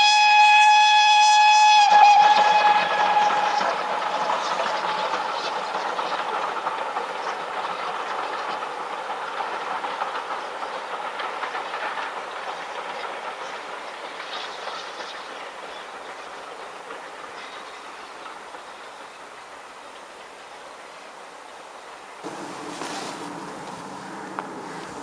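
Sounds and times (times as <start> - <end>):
steam whistle: 0.0 - 5.1
steam train running past: 0.0 - 25.0
wheels clicking over rail joints: 1.8 - 20.4, 22.2 - 25.0.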